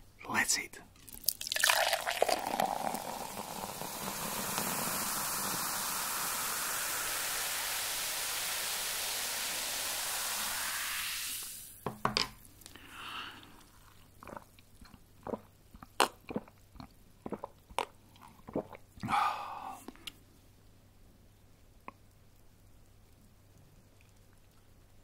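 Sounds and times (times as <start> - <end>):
steady hiss: 1.5 - 13.7.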